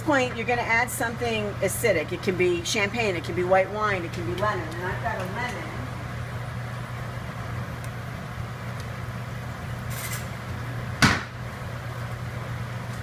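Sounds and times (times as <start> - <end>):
kitchen appliances humming: 0.0 - 13.0
sharp knock: 11.0 - 11.3.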